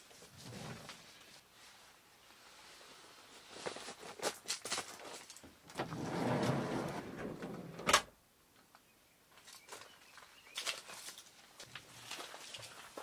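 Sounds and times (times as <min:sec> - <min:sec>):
van sliding door rolling shut: 0:05.7 - 0:08.1.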